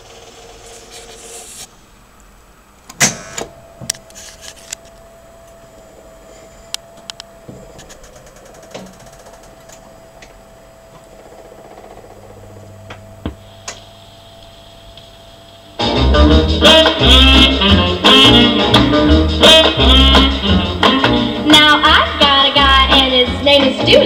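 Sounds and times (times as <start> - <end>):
low hum: 1.6 - 17.7
record changer clicking and clunking: 2.8 - 4.1
jukebox motor humming: 2.8 - 24.0.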